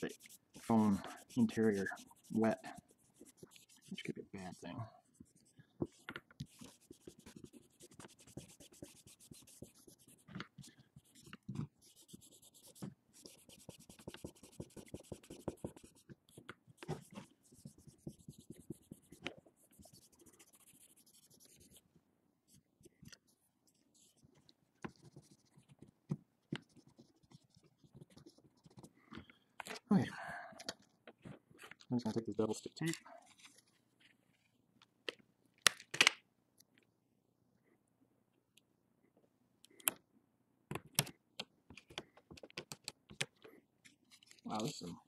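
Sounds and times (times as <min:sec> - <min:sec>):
cotton swab scrubbing plastic: 0:00.0 - 0:21.8.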